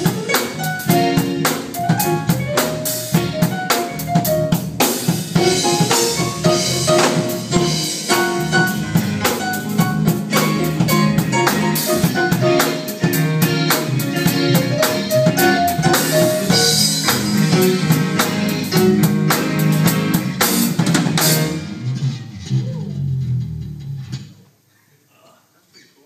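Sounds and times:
keyboard: 0.0s - 22.2s
drum kit beat: 0.0s - 24.1s
electric guitar: 0.0s - 24.3s
electric bass: 0.0s - 24.4s.

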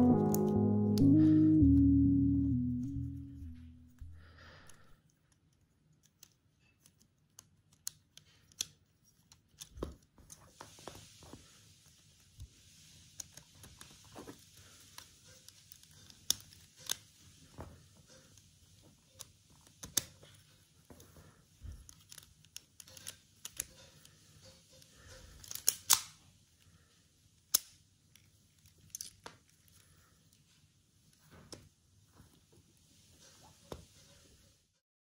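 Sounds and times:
sharp plastic snaps: 5.3s - 10.1s, 25.4s - 26.2s, 27.4s - 29.5s
plastic pieces clicking together: 14.9s - 17.1s, 21.8s - 24.1s, 24.8s - 26.2s, 27.5s - 29.8s.

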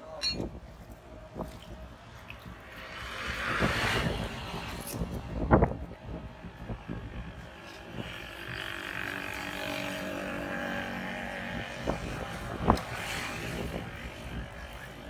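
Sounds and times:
vehicle engine passing: 8.0s - 15.0s.

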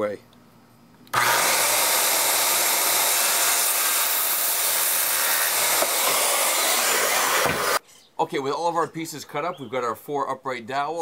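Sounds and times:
circular saw cutting wood: 1.1s - 7.8s.

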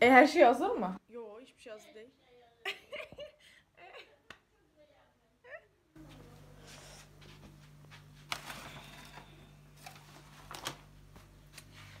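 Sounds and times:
low steady hum: 5.4s - 12.0s.

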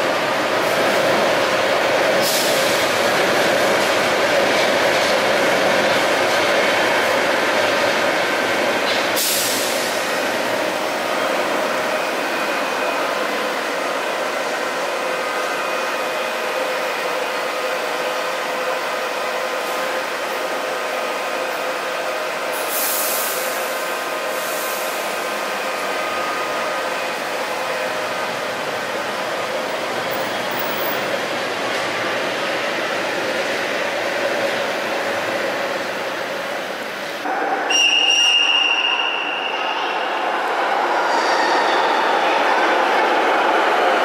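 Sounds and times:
train rumble with whining tones: 0.0s - 37.7s.

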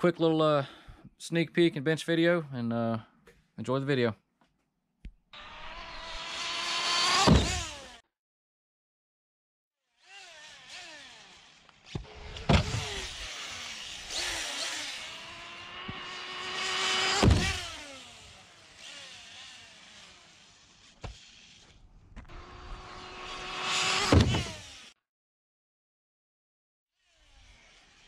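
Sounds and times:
rc car motor whining: 5.4s - 8.0s, 9.8s - 25.0s, 27.0s - 28.0s.

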